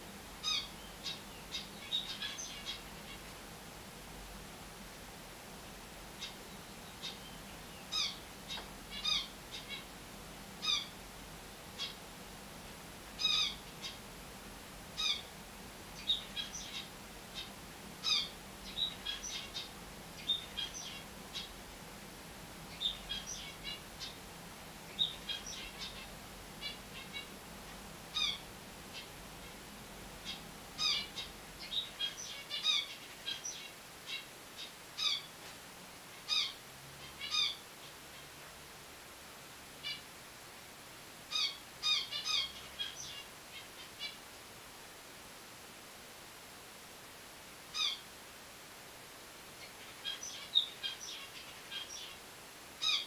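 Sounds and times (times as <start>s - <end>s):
finches chirping: 0.4s - 3.4s, 6.2s - 9.9s, 10.6s - 11.0s, 11.8s - 12.0s, 13.2s - 14.0s, 15.0s - 15.3s, 16.0s - 21.5s, 22.7s - 24.2s, 24.9s - 27.3s, 28.1s - 29.6s, 30.2s - 35.3s, 36.2s - 38.2s, 41.3s - 44.2s, 47.8s - 48.1s, 49.6s - 52.2s, 52.8s - 53.0s.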